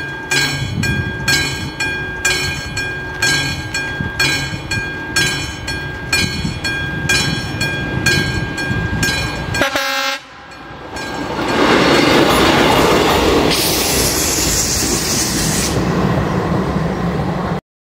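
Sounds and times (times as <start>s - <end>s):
level crossing warning bell: 0.0s - 13.5s
train engine and wheels passing: 0.0s - 17.6s
train horn blast: 9.6s - 10.5s.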